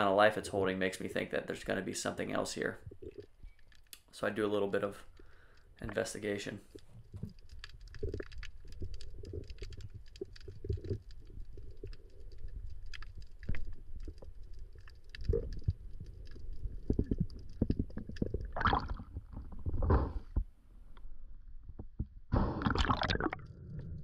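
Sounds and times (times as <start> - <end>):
small underwater clicks: 2.8 - 20.4.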